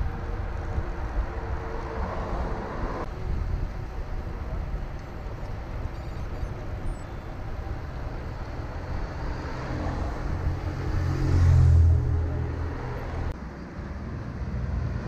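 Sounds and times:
wind rumble on microphone: 0:00.0 - 0:13.3
motor vehicle passing: 0:07.6 - 0:13.4.

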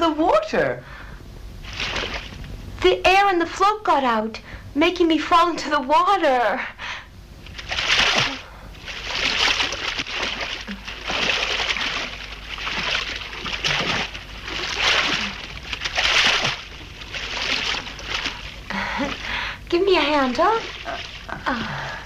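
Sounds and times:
swimming strokes splashing water: 0:01.6 - 0:02.5, 0:07.4 - 0:22.0.

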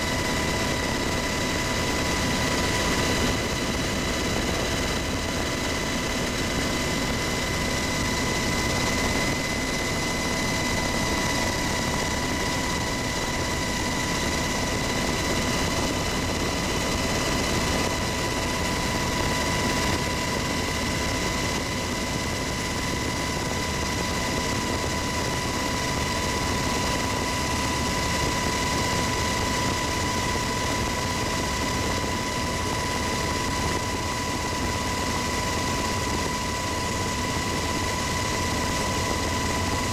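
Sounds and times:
helicopter engine and rotor noise: 0:00.0 - 0:39.9.

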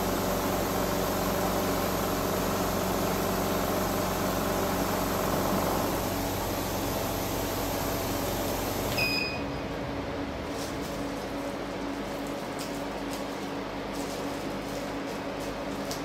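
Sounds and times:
short electronic beep: 0:09.0 - 0:09.5.

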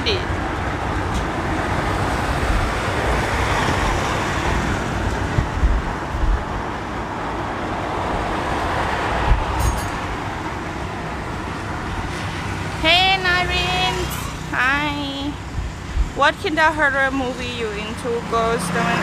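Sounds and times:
vehicle engine and road rumble: 0:00.0 - 0:19.0
wind buffeting microphone: 0:00.1 - 0:19.0
low thumps: 0:04.6 - 0:06.9, 0:09.1 - 0:10.2, 0:15.4 - 0:16.3.

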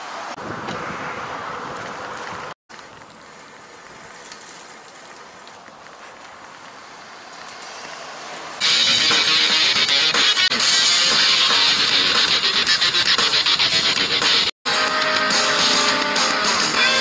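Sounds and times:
bicycle riding noise: 0:00.0 - 0:14.5
highway traffic rushing: 0:00.0 - 0:17.0
wind on microphone: 0:00.4 - 0:02.6
guitar music: 0:08.6 - 0:17.0.

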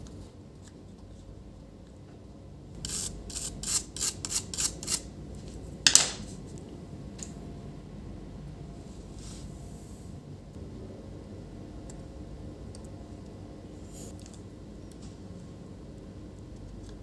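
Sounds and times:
brush scrubbing circuit board: 0:02.9 - 0:05.0.

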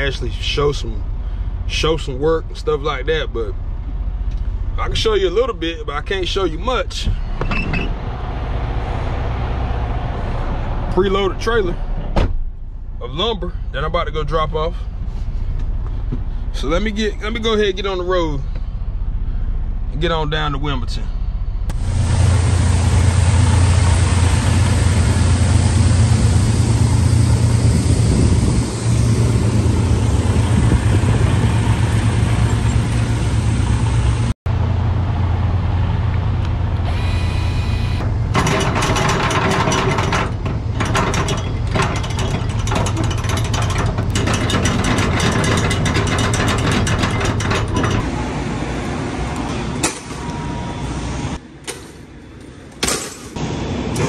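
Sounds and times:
diesel truck engine running: 0:00.0 - 0:51.4.

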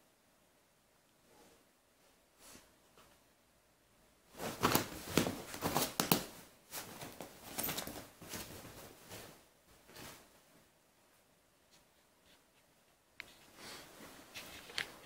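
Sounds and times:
paws scrabbling on cushions: 0:04.3 - 0:10.3.

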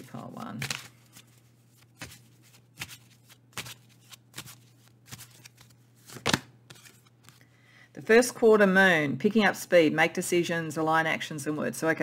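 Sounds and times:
cards being shuffled: 0:00.0 - 0:07.4.

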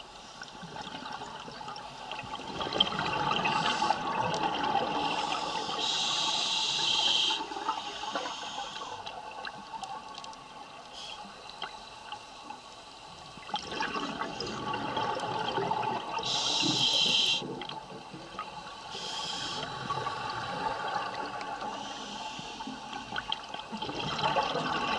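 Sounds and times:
exhaled air bubbling: 0:00.6 - 0:08.0, 0:13.4 - 0:24.9
regulator hissing inhales: 0:05.1 - 0:09.0, 0:16.2 - 0:17.5, 0:18.9 - 0:19.9, 0:21.7 - 0:23.1.

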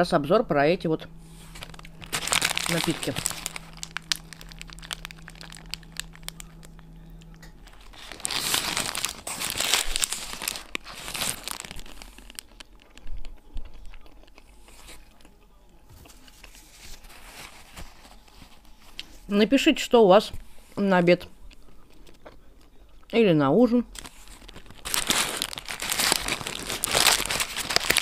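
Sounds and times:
paper wrapper crinkling: 0:01.2 - 0:15.2, 0:15.9 - 0:19.4, 0:23.9 - 0:28.0
chewing food: 0:01.3 - 0:16.8, 0:21.2 - 0:23.2.

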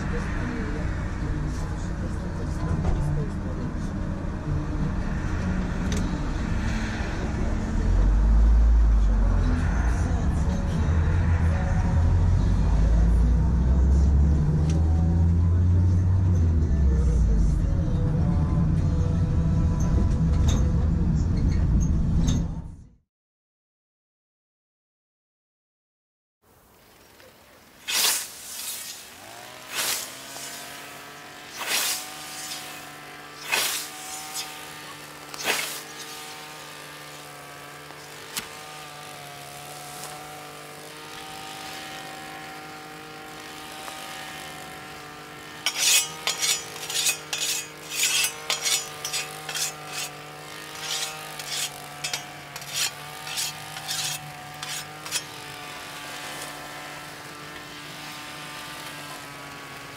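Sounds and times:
engine drone: 0:00.0 - 0:22.8, 0:27.9 - 0:59.9
whetstone scraping scythe blade: 0:27.8 - 0:59.1.

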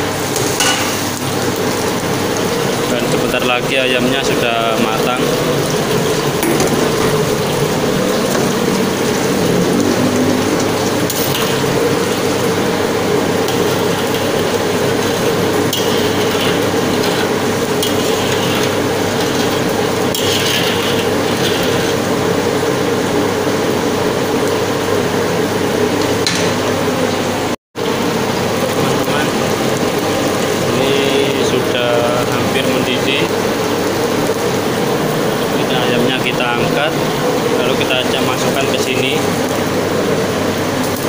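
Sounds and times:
sizzling in a wok: 0:00.0 - 0:02.8, 0:05.4 - 0:25.8
metal ladle scraping wok: 0:13.4 - 0:22.1.

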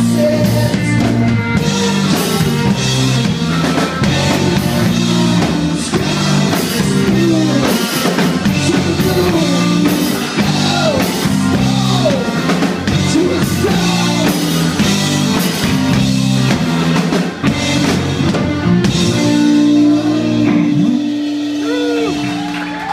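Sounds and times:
man singing: 0:00.0 - 0:15.0, 0:19.1 - 0:22.2
drum kit: 0:00.0 - 0:22.9
electric bass: 0:00.0 - 0:22.9
electric guitar: 0:00.0 - 0:22.9.

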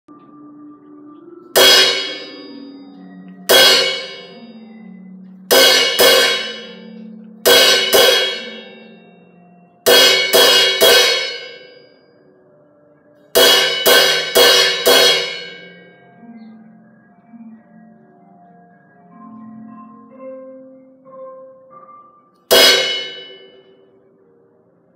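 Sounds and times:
cymbal struck with drumstick: 0:01.6 - 0:02.6, 0:03.5 - 0:04.4, 0:05.5 - 0:06.9, 0:07.5 - 0:08.8, 0:09.9 - 0:11.7, 0:13.4 - 0:15.8, 0:22.5 - 0:23.6.

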